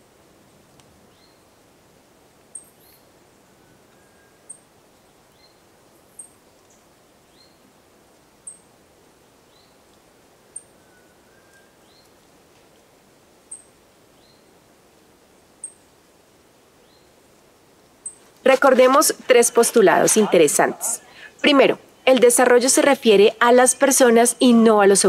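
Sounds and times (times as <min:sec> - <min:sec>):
background hiss: 0:00.0 - 0:25.0
bird chirping: 0:18.0 - 0:22.4.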